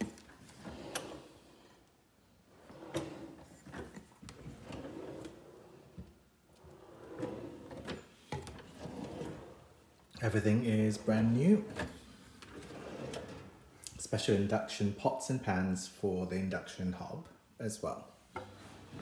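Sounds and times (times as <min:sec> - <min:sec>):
drawers sliding open and shut: 0:00.0 - 0:01.9, 0:02.5 - 0:13.7, 0:18.3 - 0:19.0.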